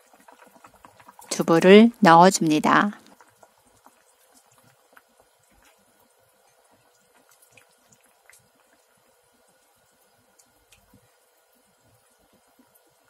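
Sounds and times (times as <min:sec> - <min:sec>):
stew bubbling in a pan: 0:00.0 - 0:13.0
small pops: 0:06.4 - 0:08.9.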